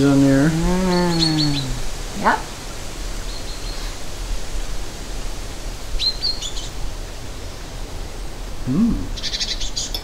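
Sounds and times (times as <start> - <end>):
background hiss: 0.0 - 10.0
closed-mouth hum: 8.7 - 9.2.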